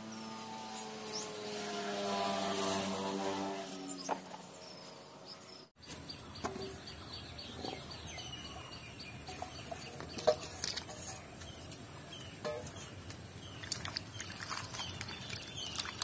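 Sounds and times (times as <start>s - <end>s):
small birds chirping: 0.0s - 1.5s, 3.7s - 16.0s.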